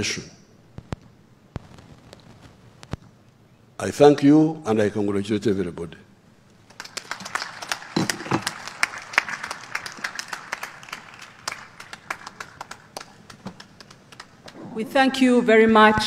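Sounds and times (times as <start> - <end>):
audience applauding: 6.6 - 14.7.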